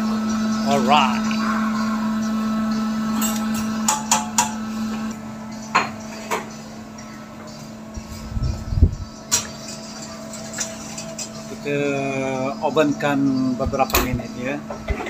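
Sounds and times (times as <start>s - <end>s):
kitchen equipment hum: 0.0s - 15.0s.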